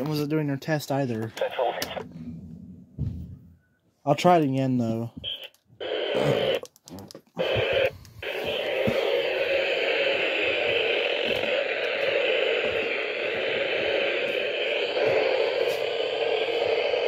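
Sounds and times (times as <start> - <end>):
radio static hiss: 0.9 - 2.0, 5.1 - 6.6, 7.4 - 17.0.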